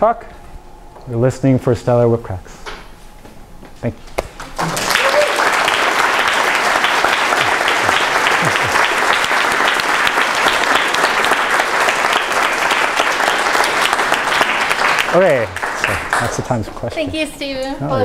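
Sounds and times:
audience applauding: 4.4 - 16.8.

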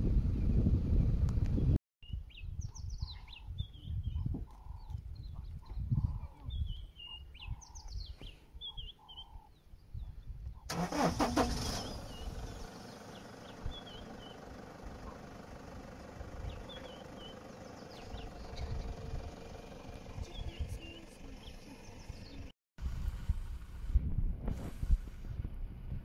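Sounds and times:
birds chirping: 2.0 - 22.5
vehicle engine running: 10.7 - 24.0.

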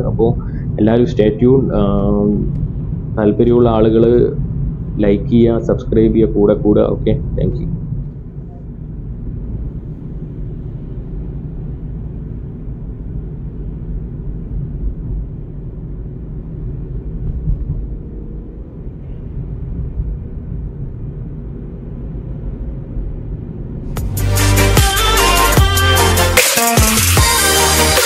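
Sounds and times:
faint steady hum: 0.0 - 24.0
vehicle driving on highway: 0.0 - 24.0
electronic music with heavy beat: 23.9 - 28.0.

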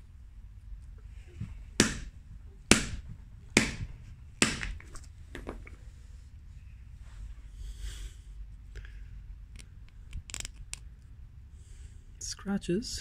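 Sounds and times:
sledge hammer striking resin disc: 1.8 - 5.5.

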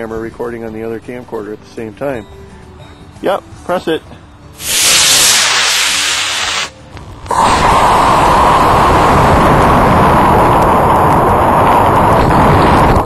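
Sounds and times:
loud rushing noise: 4.6 - 13.0
rocket motor hiss: 4.6 - 13.0.

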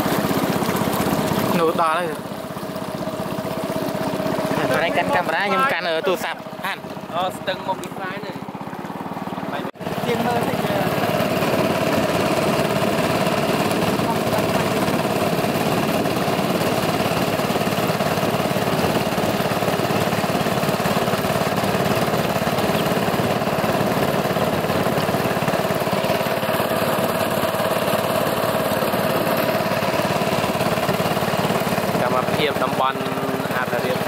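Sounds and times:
boat motor running: 0.0 - 34.0.

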